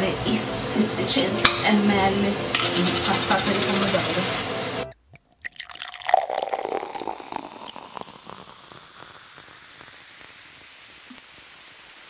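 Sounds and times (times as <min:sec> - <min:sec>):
thick sauce pouring and plopping: 0:05.1 - 0:10.5
faint steady hiss: 0:06.2 - 0:12.0.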